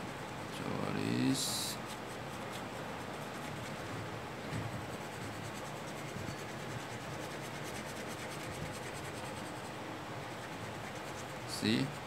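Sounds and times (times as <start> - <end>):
pen nib scratching paper: 1.8 - 3.8, 4.5 - 9.7, 10.3 - 12.0.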